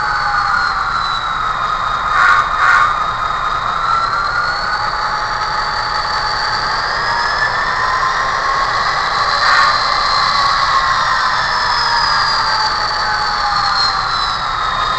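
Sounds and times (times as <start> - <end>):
model locomotive running: 0.0 - 14.9
whining tones: 0.0 - 14.9
short bursts of noise: 2.1 - 3.0.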